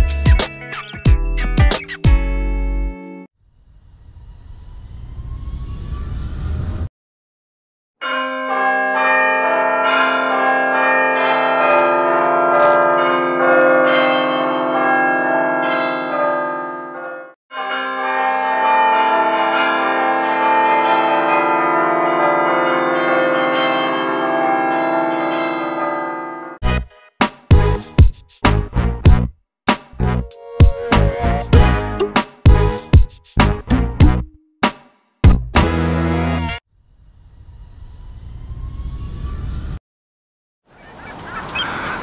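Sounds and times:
rising low rumble: 0:03.5 - 0:06.9, 0:36.8 - 0:39.8
church bells ringing: 0:08.0 - 0:26.7.

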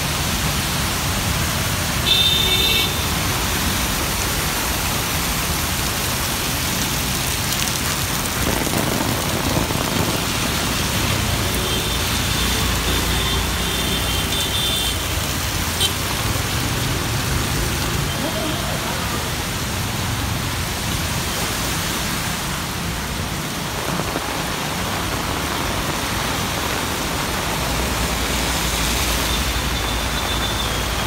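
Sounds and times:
heavy rain on water and pavement: 0:00.0 - 0:31.0.

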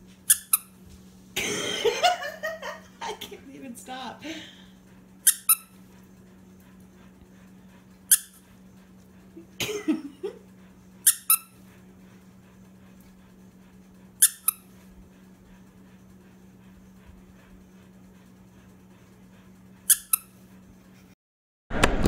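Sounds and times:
dog toy squeaking: 0:00.3 - 0:00.7, 0:05.2 - 0:05.8, 0:08.1 - 0:08.4, 0:11.0 - 0:11.6, 0:14.2 - 0:14.6, 0:19.9 - 0:20.4.

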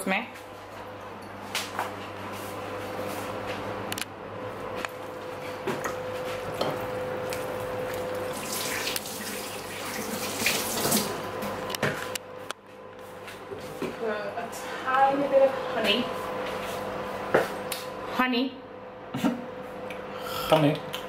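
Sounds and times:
tap water running into sink: 0:08.3 - 0:11.1.

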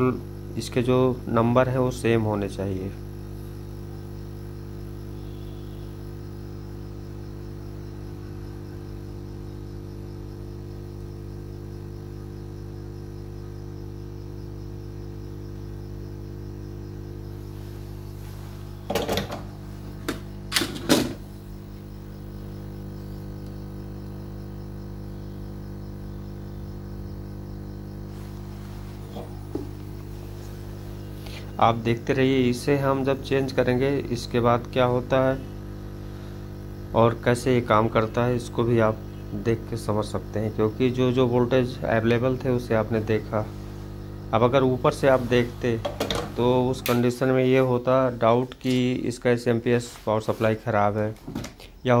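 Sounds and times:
hot air gun humming: 0:03.0 - 0:47.8
tool knocks and clatter: 0:18.9 - 0:21.2, 0:45.8 - 0:46.4, 0:51.2 - 0:51.6.

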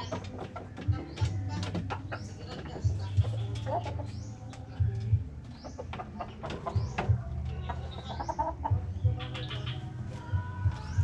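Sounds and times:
bamboo coop knocking and rattling: 0:00.0 - 0:04.1, 0:05.8 - 0:07.8
chickens clucking: 0:00.0 - 0:11.0
chicks peeping: 0:00.0 - 0:11.0.

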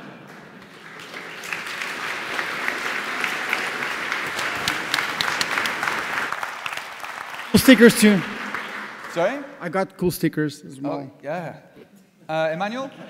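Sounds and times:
sharp individual claps: 0:00.0 - 0:09.4
audience applauding: 0:00.0 - 0:09.7.

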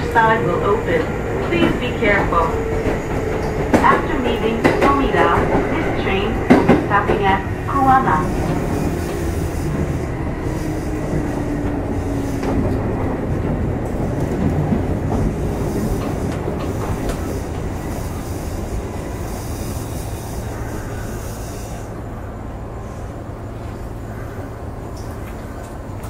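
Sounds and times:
train wheels rumbling on rail: 0:00.0 - 0:26.0
train motor whine: 0:15.1 - 0:25.8.

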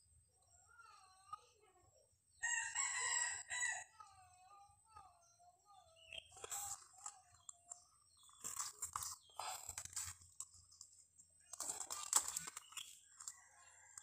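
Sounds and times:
nylon line crinkling on plastic: 0:06.4 - 0:13.4.

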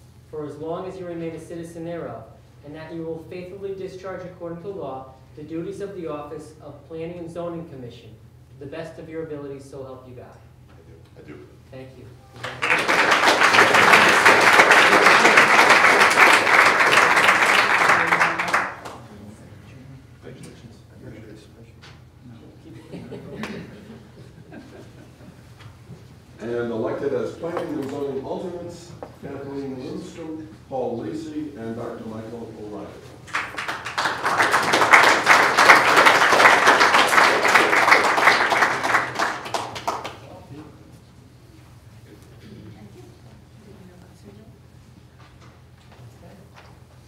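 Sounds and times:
audience applauding: 0:12.3 - 0:19.0, 0:33.2 - 0:40.2.

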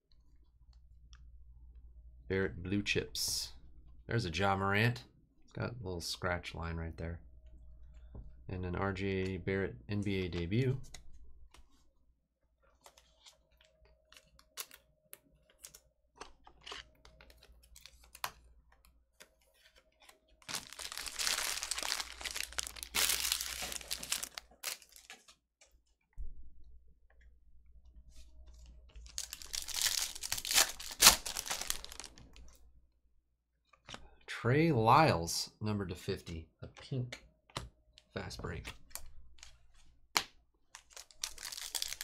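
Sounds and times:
foil wrappers tearing and crinkling: 0:20.5 - 0:25.1, 0:29.1 - 0:32.2, 0:40.8 - 0:42.0.

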